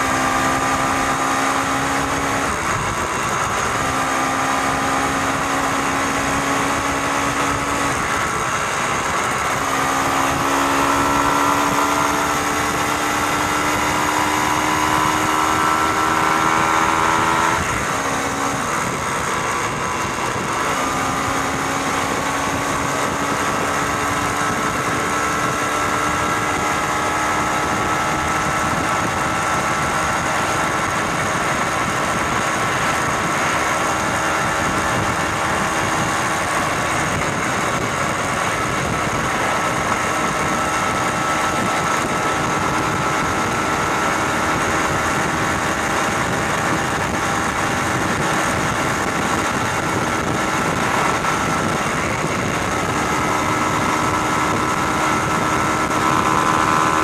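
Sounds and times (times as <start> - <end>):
road noise: 0.0 - 57.0
vehicle engine running steadily: 0.0 - 57.0
wind noise: 0.0 - 57.0.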